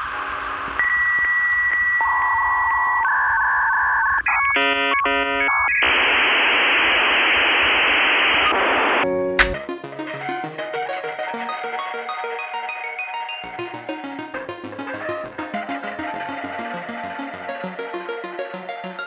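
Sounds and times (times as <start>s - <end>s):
electronic background music: 9.0s - 19.0s
single hit: 9.4s - 9.6s.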